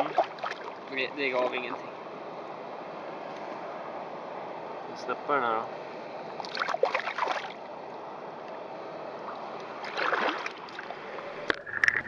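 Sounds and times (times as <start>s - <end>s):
stream rushing: 0.0s - 12.0s
hands splashing in water: 9.8s - 10.9s.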